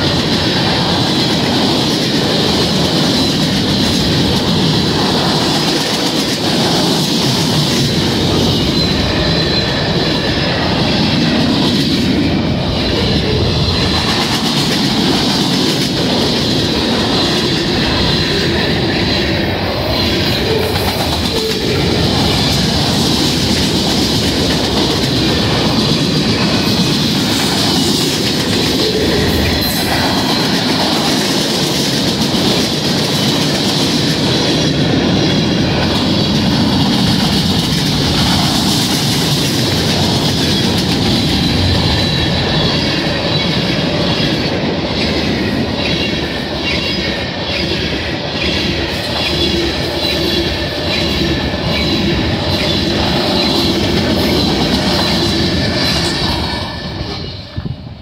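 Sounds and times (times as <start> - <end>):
wheels clacking over rail joints: 0.0 - 57.4
high wheel squeal: 7.9 - 11.2.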